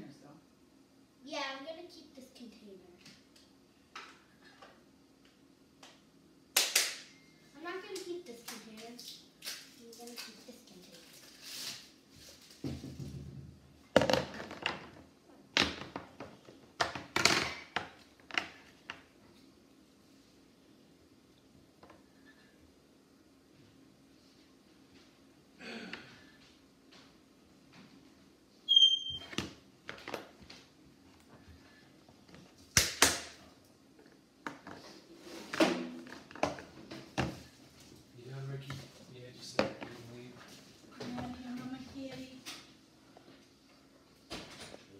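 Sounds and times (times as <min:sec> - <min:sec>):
objects knocking and clattering: 0:12.6 - 0:19.0, 0:35.5 - 0:37.5.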